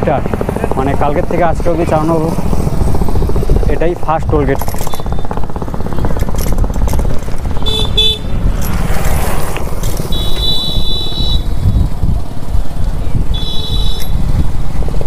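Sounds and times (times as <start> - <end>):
road rumble: 0.0 - 15.0
wind buffeting microphone: 0.0 - 15.0
vehicle horns beeping: 7.6 - 8.3, 10.1 - 11.5, 13.3 - 14.2.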